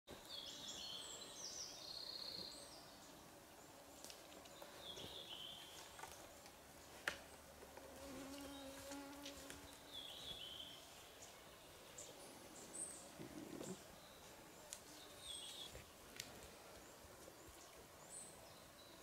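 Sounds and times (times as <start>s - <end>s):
bird song: 0.1s - 7.4s, 8.3s - 19.0s.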